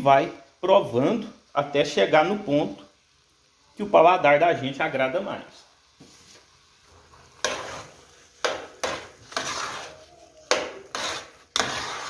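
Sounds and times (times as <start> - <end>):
metal spoon scraping pot: 7.4 - 12.0.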